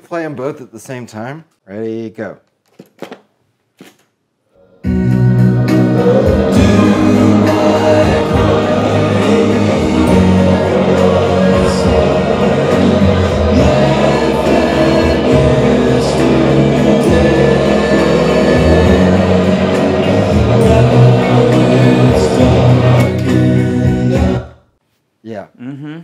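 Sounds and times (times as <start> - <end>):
song with singing over speakers: 4.6 - 24.8.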